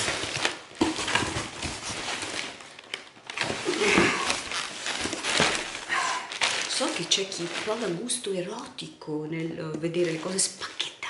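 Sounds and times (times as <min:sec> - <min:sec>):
plastic packing and cardboard rustling: 0:00.0 - 0:11.0.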